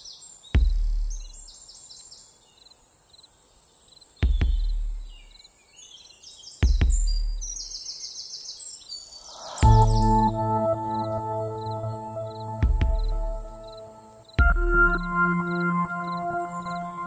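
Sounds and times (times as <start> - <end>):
steady high hiss: 9.1 - 14.4
rapid chirping trills: 9.1 - 17.0
deep cinematic boom hits: 9.4 - 15.4.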